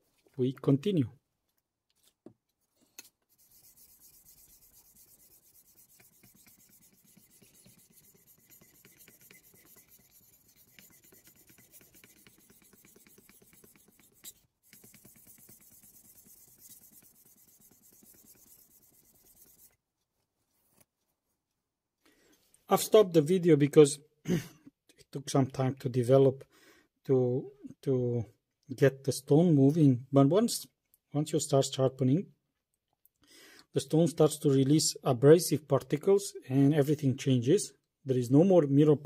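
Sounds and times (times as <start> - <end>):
knife scraping on whetstone: 3.0 - 19.7.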